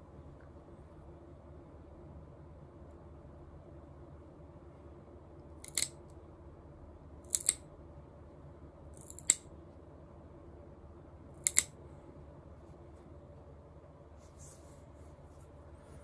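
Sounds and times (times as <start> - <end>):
claw clippers snipping: 11.5 - 11.7.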